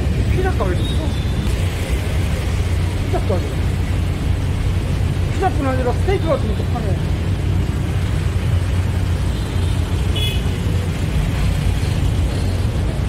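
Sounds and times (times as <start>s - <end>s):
heavy road traffic rumble: 0.0s - 13.0s
vehicle horn toot: 10.1s - 10.5s.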